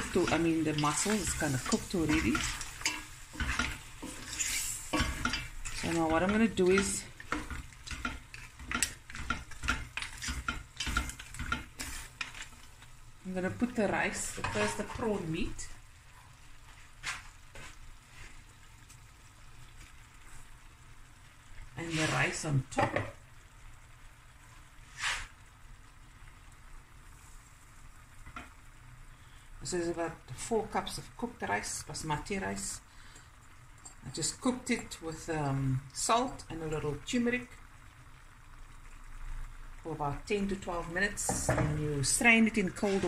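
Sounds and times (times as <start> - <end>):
rice swishing into pot: 0.0 - 12.6, 24.8 - 25.4
wooden spoon stirring shellfish in pot: 0.0 - 20.7, 21.4 - 23.3, 39.8 - 43.0.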